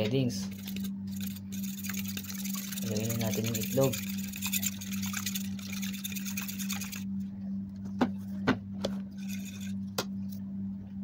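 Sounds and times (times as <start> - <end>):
low steady hum: 0.0 - 11.0
eggs beaten with metal utensil: 0.5 - 7.0, 9.2 - 9.7.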